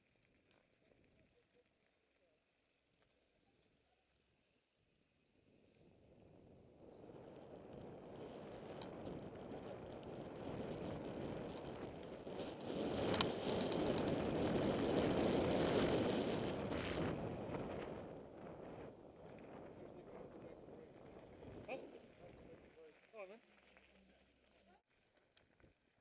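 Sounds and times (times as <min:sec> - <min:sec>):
wind buffeting microphone: 0:05.8 - 0:22.9
tyres rolling over gravel: 0:07.0 - 0:25.6.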